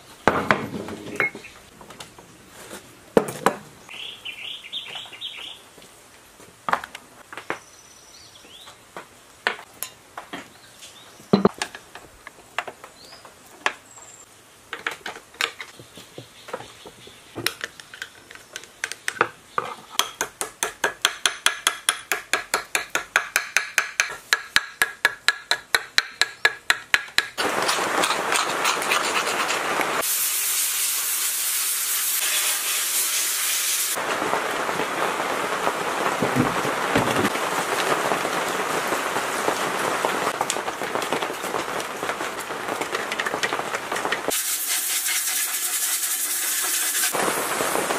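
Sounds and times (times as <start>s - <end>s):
steady hiss: 27.4s - 39.3s, 44.2s - 47.9s.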